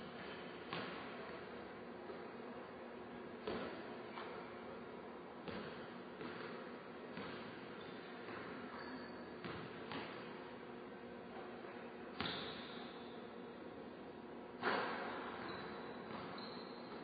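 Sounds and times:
basketball thuds echoing: 7.1 - 7.6.

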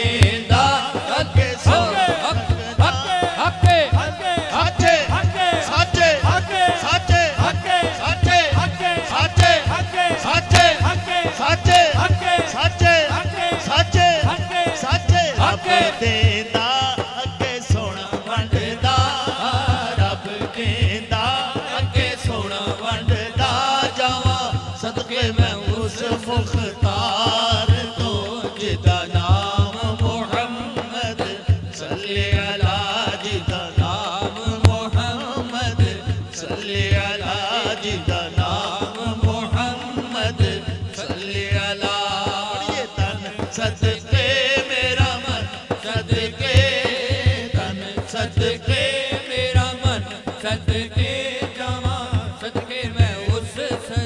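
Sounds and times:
voices singing devotional melody: 0.0 - 54.0.

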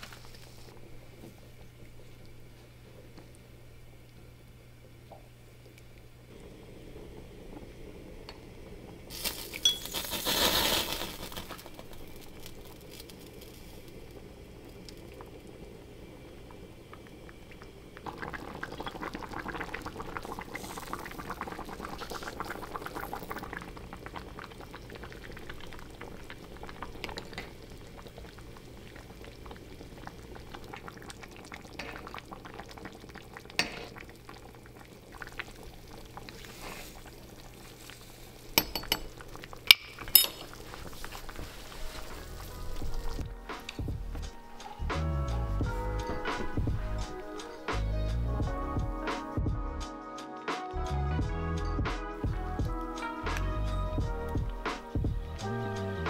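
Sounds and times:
stew boiling in a pot: 0.0 - 49.1, 52.2 - 56.0
spoon splashing and clinking: 9.5 - 10.0, 38.6 - 40.6
spoon clinking on pot: 9.6 - 9.9, 38.6 - 40.6.

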